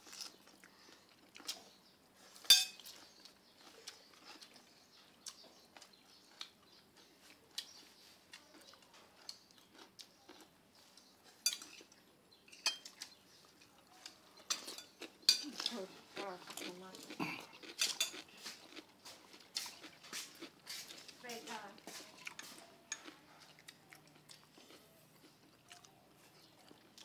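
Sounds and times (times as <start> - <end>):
chopsticks clinking on ceramic bowls: 2.4 - 3.0, 11.3 - 13.2, 14.0 - 15.8, 16.5 - 18.3, 22.2 - 23.2.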